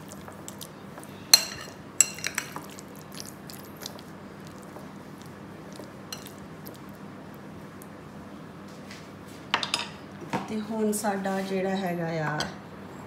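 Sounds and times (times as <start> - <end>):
spoon scraping and squelching: 1.3 - 4.8, 5.7 - 6.8.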